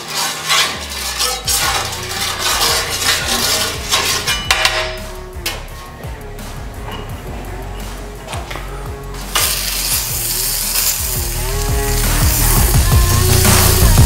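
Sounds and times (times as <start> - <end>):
oil sizzling: 0.0 - 5.4, 9.0 - 14.0
spatula clinking: 0.0 - 5.6
metal spatula scraping griddle: 0.0 - 6.0, 9.2 - 14.0
background music: 0.0 - 14.0.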